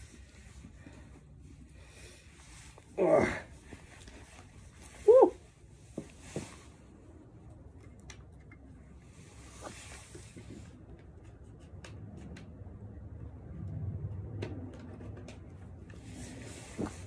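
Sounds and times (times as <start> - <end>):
helmet rustling on head: 9.1 - 11.4, 15.9 - 17.0.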